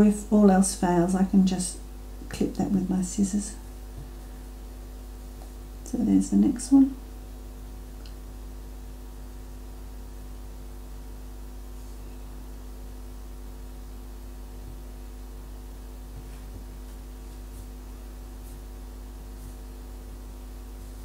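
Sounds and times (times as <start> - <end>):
electrical mains hum: 0.0 - 21.0
faint light ticks: 8.0 - 8.2.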